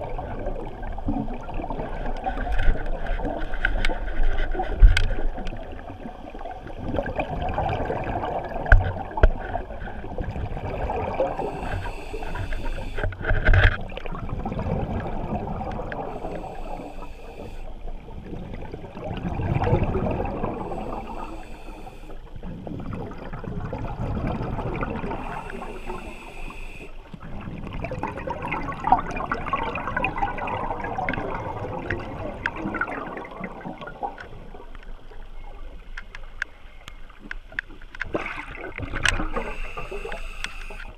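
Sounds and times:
bubbles gurgling: 5.5 - 26.4, 27.2 - 34.6
diver breathing through regulator: 11.2 - 13.3, 16.0 - 17.8, 20.5 - 22.3, 25.1 - 27.0, 39.2 - 40.9.

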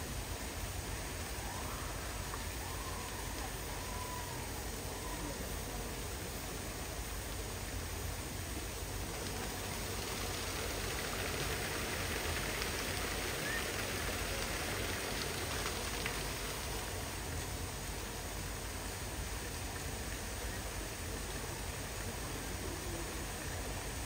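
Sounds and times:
outdoor background hiss: 0.0 - 24.0
faint crackles: 8.8 - 18.2.

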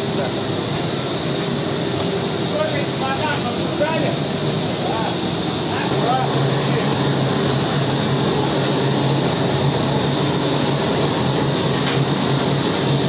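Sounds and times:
aircraft engines running: 4.1 - 13.0.

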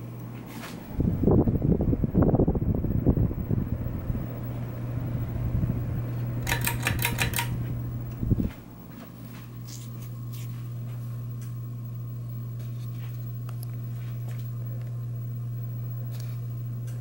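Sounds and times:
ceiling fan motor humming: 0.0 - 17.0
rapid clicking: 6.4 - 7.6.

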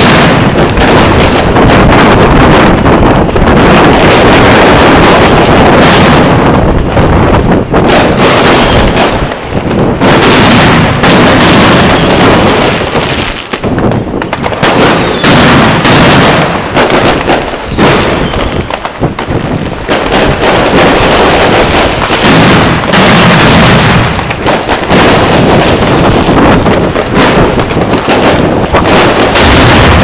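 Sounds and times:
firecrackers banging: 0.0 - 30.0.

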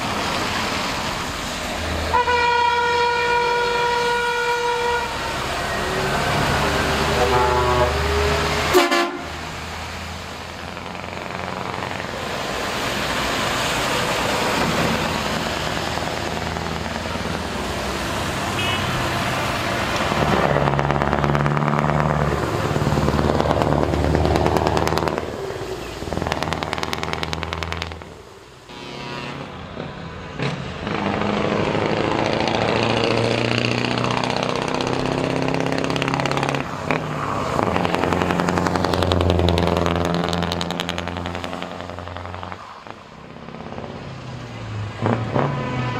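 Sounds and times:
diesel trucks driving past: 0.0 - 45.9
air horn: 2.1 - 5.3, 7.0 - 9.4, 18.6 - 19.0, 28.7 - 29.6, 45.1 - 45.9.

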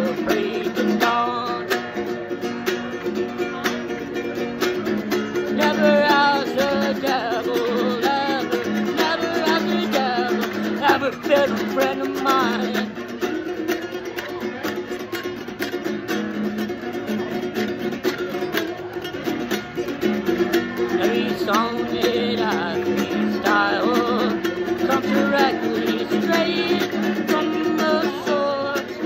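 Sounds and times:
man singing: 0.0 - 2.2, 5.4 - 13.1, 20.8 - 29.0
nylon-string guitar strummed: 0.0 - 29.0.

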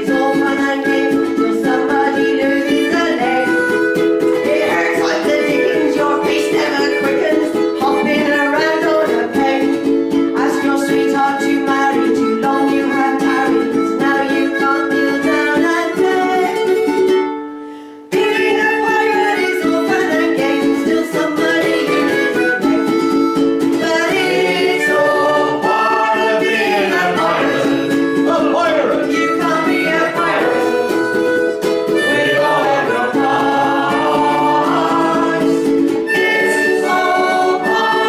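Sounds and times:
woman singing: 0.0 - 17.1, 18.1 - 28.3, 29.0 - 38.0
harmonica chords: 0.0 - 38.0
ukulele strumming: 0.0 - 38.0.

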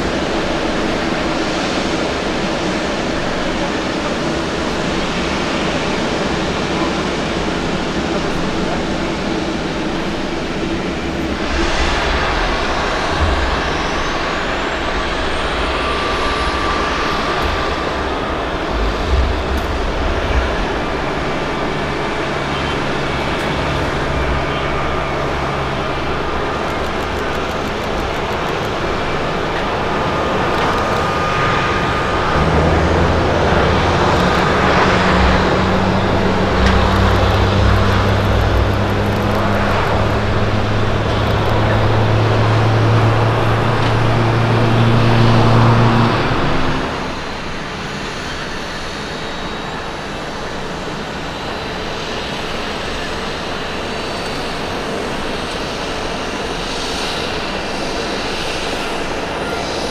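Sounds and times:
jet engines running: 0.0 - 59.9
quieter jet noise of landing plane: 0.0 - 59.9.

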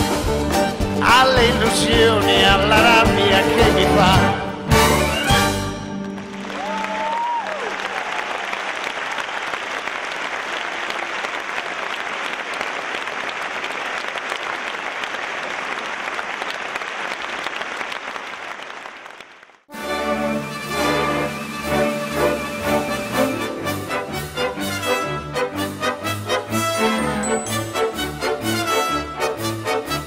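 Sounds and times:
audience applauding: 5.9 - 19.7
call rising and falling in pitch: 26.6 - 27.9.

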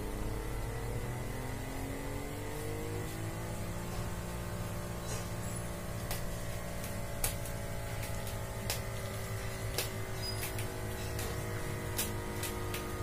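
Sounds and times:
electric air pump humming: 0.0 - 13.0
faint irregular ticks: 5.1 - 13.0.

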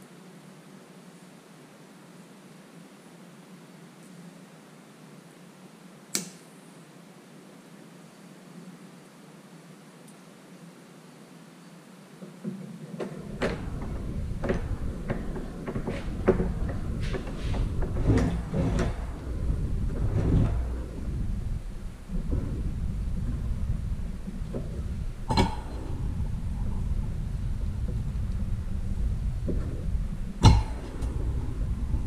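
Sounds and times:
steady low rumble: 13.1 - 32.0.

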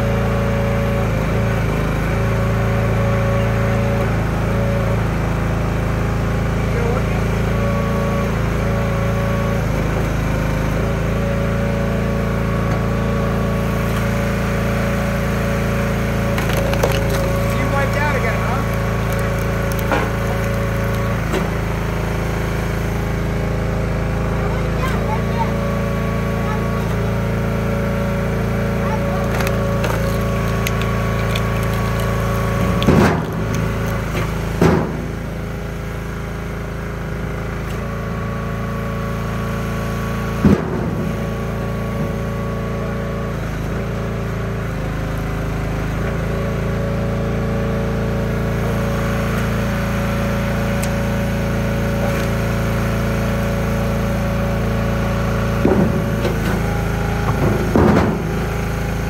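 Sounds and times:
engine running: 0.0 - 59.0
wood cracking and splitting: 12.7 - 22.7, 26.7 - 35.6, 49.2 - 59.0.

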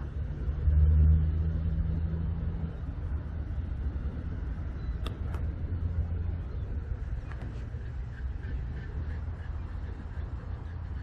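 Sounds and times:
vehicle engine rumble passing: 0.0 - 11.0.

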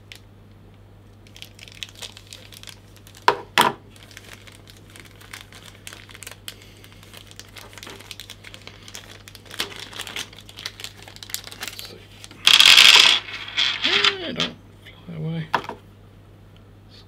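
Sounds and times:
plastic packet crinkling: 1.1 - 14.2.

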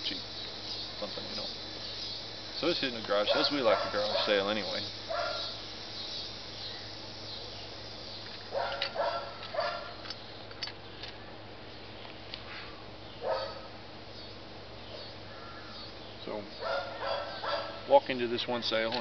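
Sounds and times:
dog barking: 3.2 - 5.6, 8.5 - 9.9, 13.2 - 13.7, 16.6 - 17.8.

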